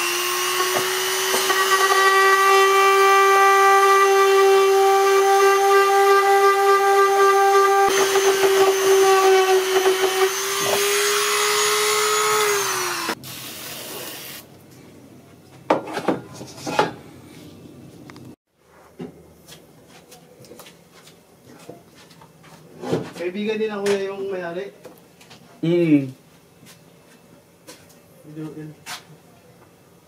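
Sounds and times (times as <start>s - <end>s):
rotary tool whining: 0.0s - 14.4s
handling knocks and scrapes: 15.5s - 23.3s.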